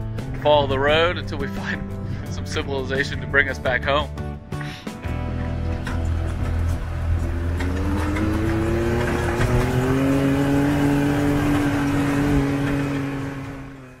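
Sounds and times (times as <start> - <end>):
utility vehicle engine running: 5.2 - 14.0.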